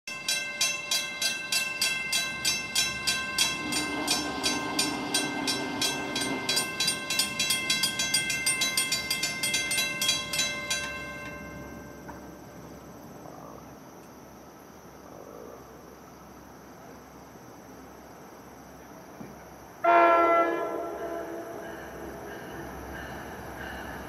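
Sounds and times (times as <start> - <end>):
crossing warning bell ringing: 0.1 - 12.7, 19.9 - 24.0
distant train horn: 3.0 - 7.0, 19.8 - 22.8.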